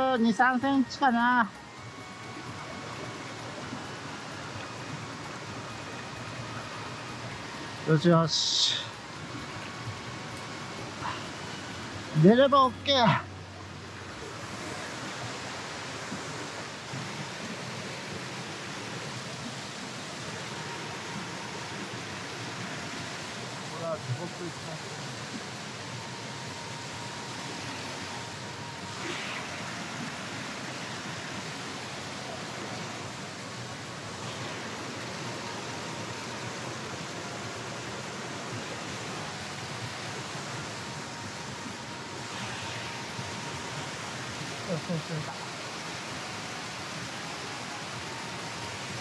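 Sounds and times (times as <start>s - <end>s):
stream rushing over rocks: 0.0s - 49.0s.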